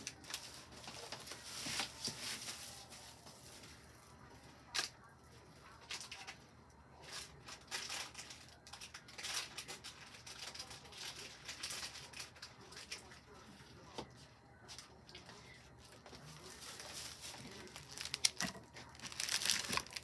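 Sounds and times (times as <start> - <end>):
packaging rustling: 15.8 - 20.0.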